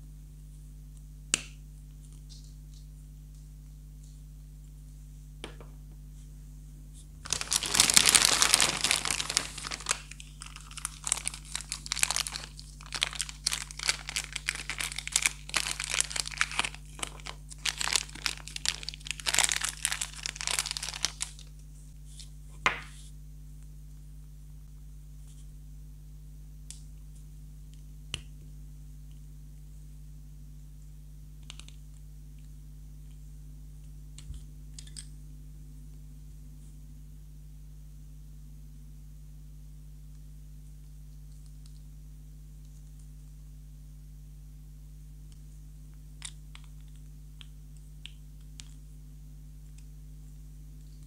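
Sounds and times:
plastic wrapper crinkling and tearing: 7.2 - 21.6.

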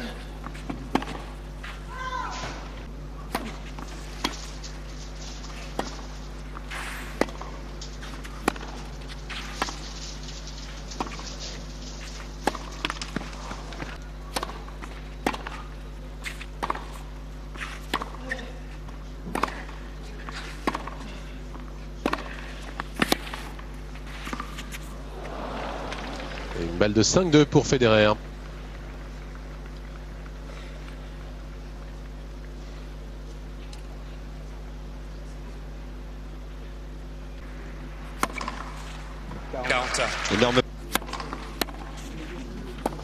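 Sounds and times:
steady low hum: 0.0 - 43.0
tennis ball bouncing: 0.4 - 18.5, 19.2 - 21.0, 21.6 - 25.1, 38.1 - 39.4, 40.8 - 43.0
tennis racket hitting ball: 0.5 - 2.7, 3.3 - 18.5, 19.2 - 21.1, 22.0 - 25.1, 38.1 - 39.0, 40.9 - 43.0.

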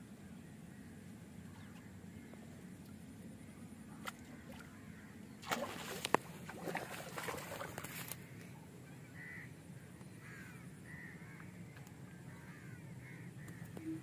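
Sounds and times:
low steady background noise: 0.0 - 14.0
fish splashing and thrashing: 5.4 - 8.2.

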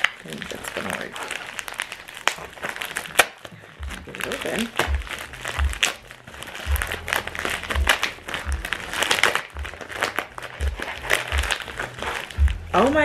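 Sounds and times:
plastic bag crinkling: 0.0 - 13.0
dull low bumps: 9.6 - 13.0.

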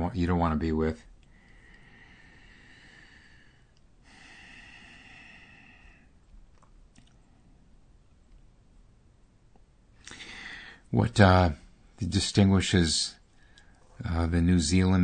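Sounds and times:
faint breathing: 1.2 - 6.2, 10.0 - 10.9, 13.2 - 14.1
faint clicks: 6.2 - 7.3.

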